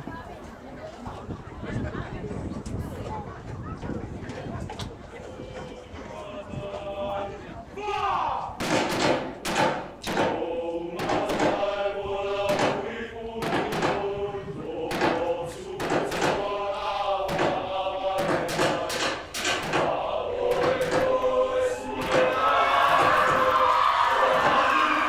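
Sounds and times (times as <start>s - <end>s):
group of voices singing: 5.2s - 7.7s, 8.6s - 25.0s.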